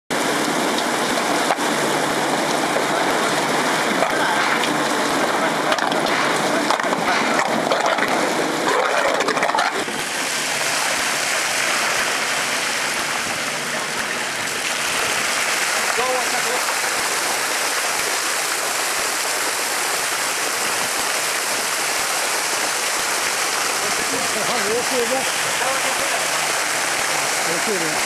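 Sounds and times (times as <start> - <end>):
muddy water splashing and churning: 0.1 - 28.0
slurry pouring from a hose: 0.2 - 28.0.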